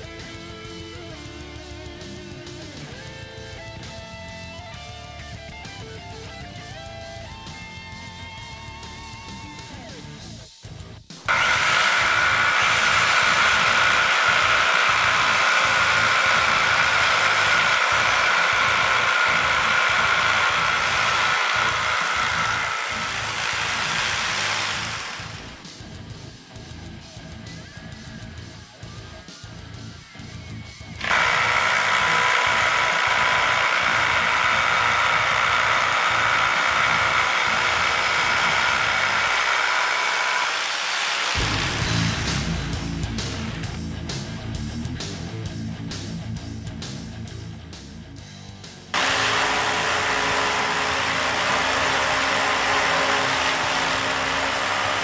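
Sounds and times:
rotary hammers drilling concrete: 11.2 - 25.7, 31.0 - 43.8, 48.9 - 55.0
hammering rattle: 11.3 - 25.6, 31.0 - 42.6, 49.0 - 55.0
motor whine: 11.3 - 25.6.

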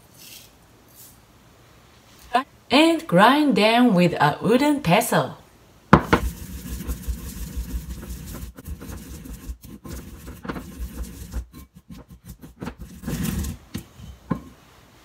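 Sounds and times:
pestle grinding seeds in mortar: 6.0 - 14.5.

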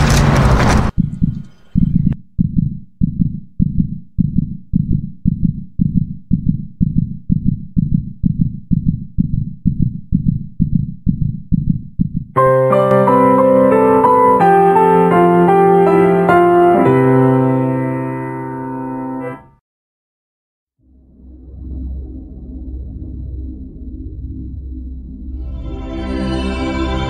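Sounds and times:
heartbeat double thump: 0.6 - 12.4
soft piano music: 12.4 - 19.5.

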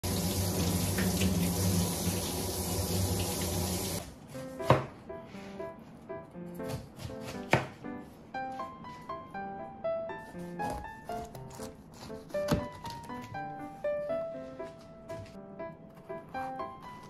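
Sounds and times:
tap water running into sink: 0.0 - 4.0
background music: 4.3 - 17.0
knife chopping onto cutting board: 4.6 - 5.0, 6.6 - 7.8, 10.6 - 13.0.

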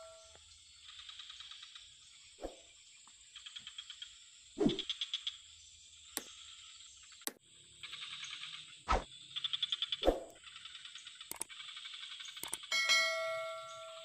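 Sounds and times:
frogs calling with rattling clicks: 0.0 - 12.8.

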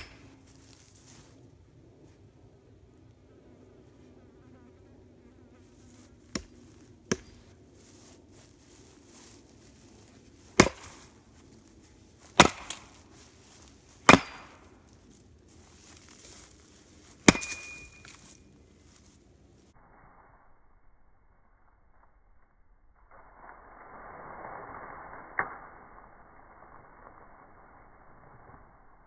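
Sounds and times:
axe striking firewood: 0.0 - 0.2, 6.3 - 7.4, 10.5 - 11.1, 12.3 - 13.0, 14.0 - 14.7, 17.2 - 18.3.

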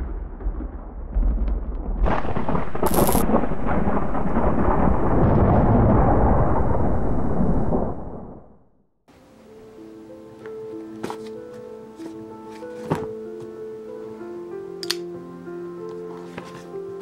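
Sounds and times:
crackling thunder-like rumble: 0.0 - 8.7.

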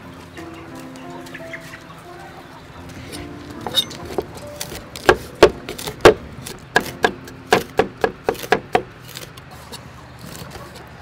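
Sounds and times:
cleaver chopping on wooden block: 3.7 - 9.3.

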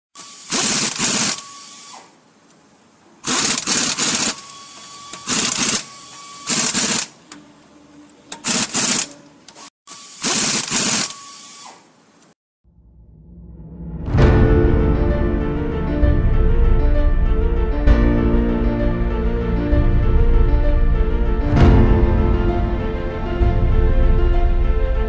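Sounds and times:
rapid mechanical rattling: 3.2 - 4.4, 6.5 - 7.2, 8.3 - 11.1.

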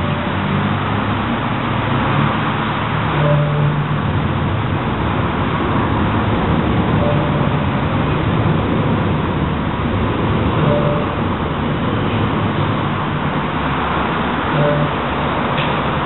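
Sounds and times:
road traffic: 0.0 - 16.0
faint short tone: 14.6 - 15.2.

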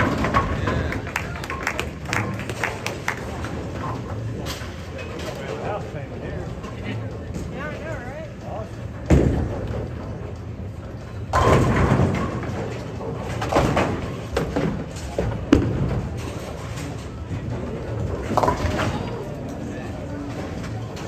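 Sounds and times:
rumble of bowling hall: 0.0 - 21.0
bowling pins crashing: 11.3 - 16.6.

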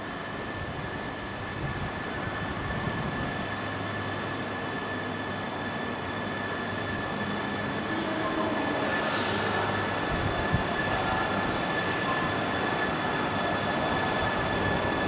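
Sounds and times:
train arriving at platform: 0.0 - 15.0
steady high tone: 3.4 - 15.0.

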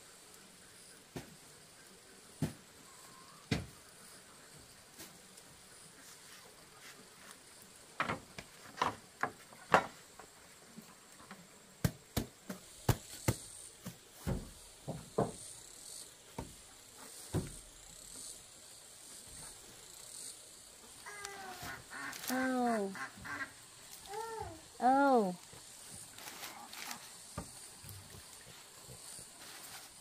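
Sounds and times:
insects chirring: 0.0 - 30.0
ducks quacking: 21.6 - 23.6.

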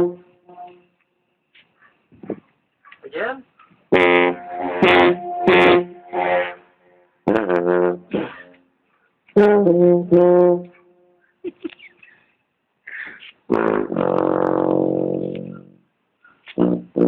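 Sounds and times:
brassy horn notes: 0.0 - 0.9, 3.9 - 8.6, 9.4 - 10.8, 13.5 - 15.8, 16.6 - 17.0.

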